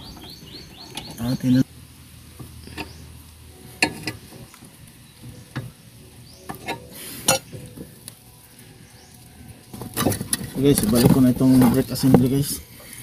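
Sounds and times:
tools scraping on ground: 9.0 - 13.0.

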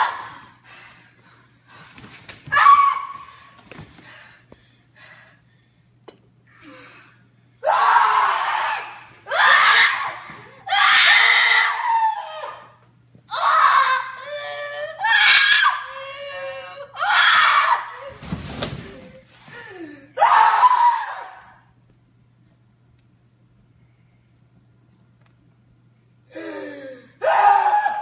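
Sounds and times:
girl screaming: 2.5 - 3.3, 7.6 - 12.6, 13.3 - 18.1.

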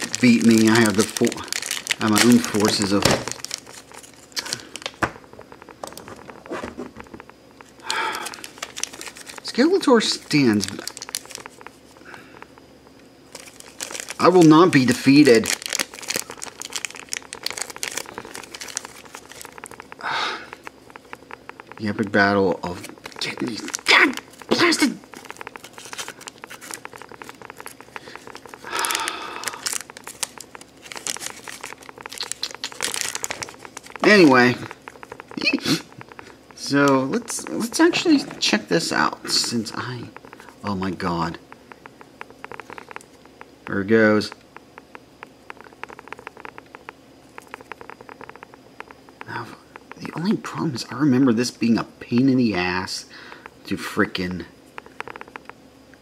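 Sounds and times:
plastic wrap rustling: 0.0 - 12.3, 13.3 - 43.3
plastic bag crinkling: 0.0 - 12.6, 13.3 - 44.4.

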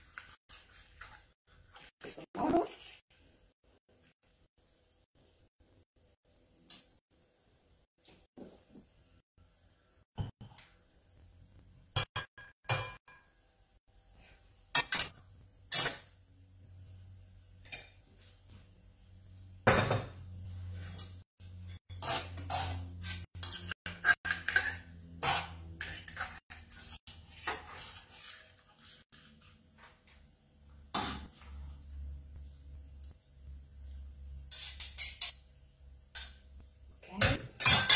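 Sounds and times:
utensils clinking against pan: 14.7 - 16.0, 20.9 - 28.2, 37.2 - 37.9.

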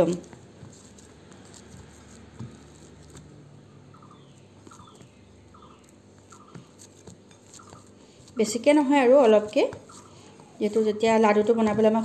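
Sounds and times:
hands kneading dough in bowl: 0.0 - 12.0
bird chirping: 3.9 - 6.7.

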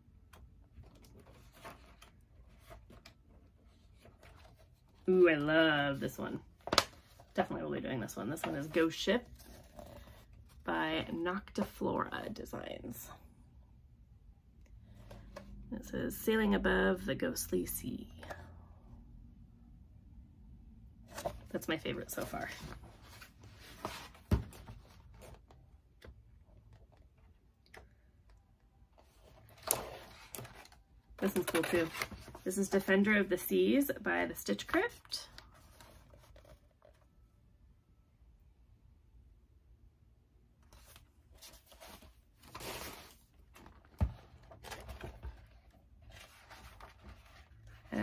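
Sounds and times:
paper rustling: 40.7 - 47.8.

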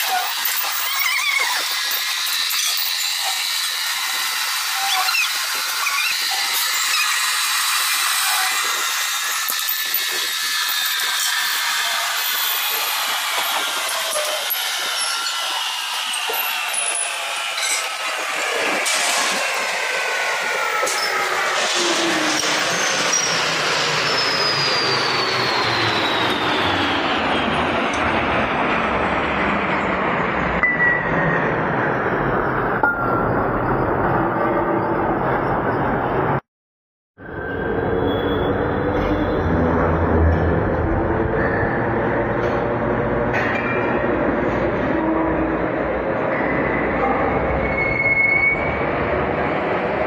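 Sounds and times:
drill press cutting metal: 0.0 - 19.6
wavering squeals: 46.4 - 48.9.

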